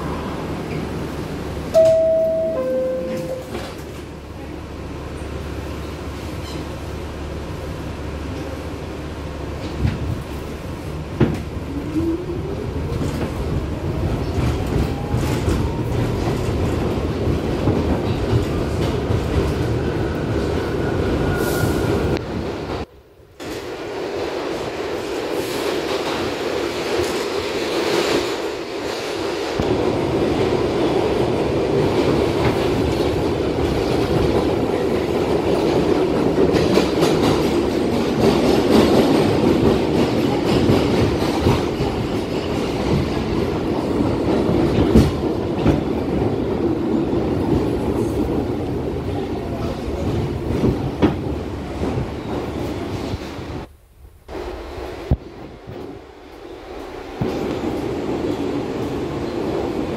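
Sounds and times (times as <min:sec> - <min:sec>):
subway car rumble and clatter: 0:00.0 - 0:59.9.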